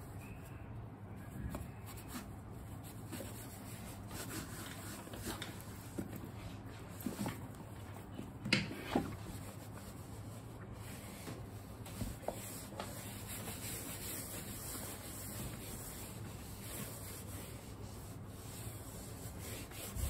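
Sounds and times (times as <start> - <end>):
wet wipe rubbing leather: 12.1 - 20.0.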